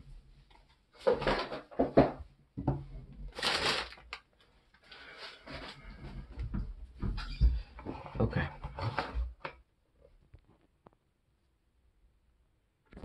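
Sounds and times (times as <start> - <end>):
paper rustling and crackling: 3.2 - 5.9.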